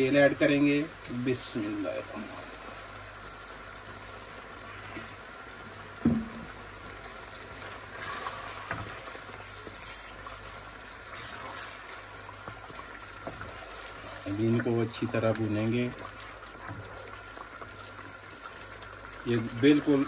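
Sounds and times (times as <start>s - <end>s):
masala sizzling and bubbling: 0.0s - 20.0s
sharp knock: 6.0s - 6.4s
wooden spoon stirring: 7.4s - 20.0s.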